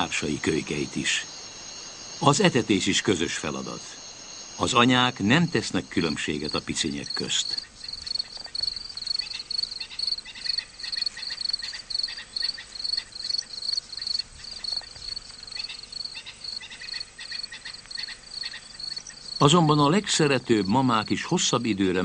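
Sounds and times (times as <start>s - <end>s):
faint lower chirps: 0.0s - 12.5s
insects chirping: 0.0s - 22.0s.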